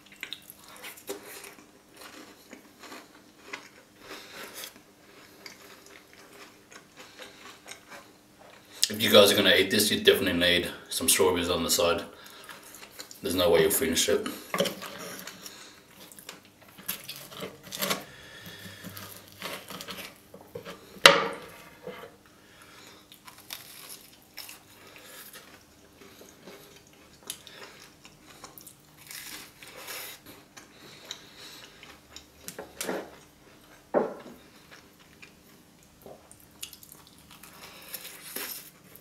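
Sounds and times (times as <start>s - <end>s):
close chewing: 0.0s - 9.0s, 22.6s - 39.0s.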